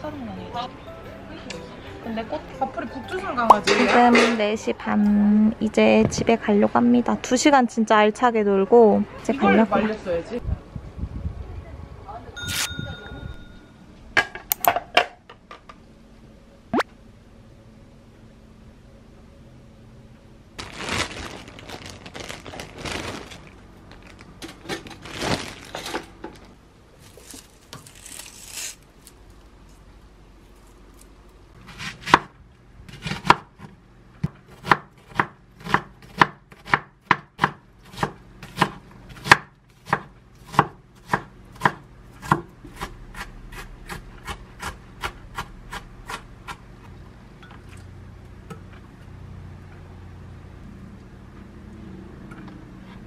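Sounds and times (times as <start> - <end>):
rustling and handling noises: 20.6 - 31.4
knife chopping on wooden board: 32.9 - 46.6.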